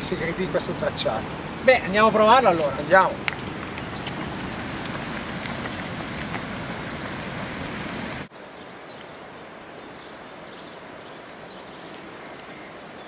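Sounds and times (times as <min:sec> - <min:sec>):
wind rushing on microphone: 0:00.0 - 0:08.3
outdoor background noise: 0:00.0 - 0:13.0.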